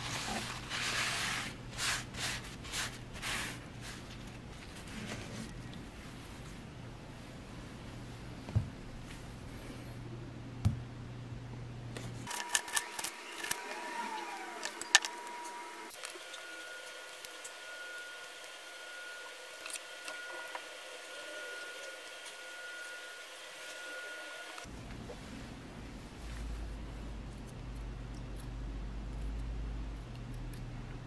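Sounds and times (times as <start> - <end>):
faint high whine: 12.3 - 24.8.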